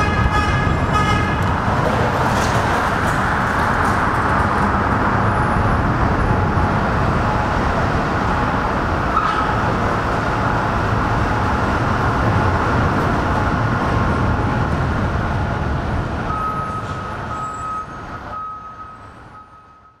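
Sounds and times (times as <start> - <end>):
rail cars rumbling past: 0.0 - 20.0
high-pitched wheel squeal: 16.3 - 20.0.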